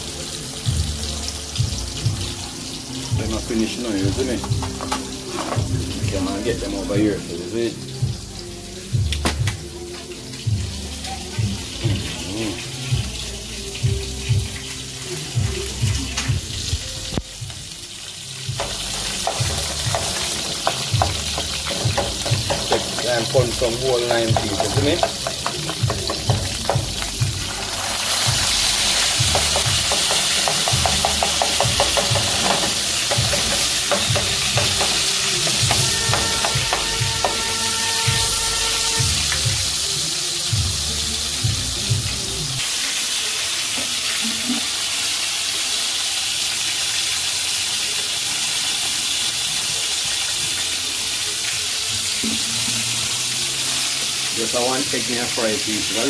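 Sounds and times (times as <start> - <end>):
oil sizzling in a frying pan: 0.0 - 56.0
fork scraping a pan: 4.6 - 5.7, 18.6 - 26.8, 28.5 - 39.0.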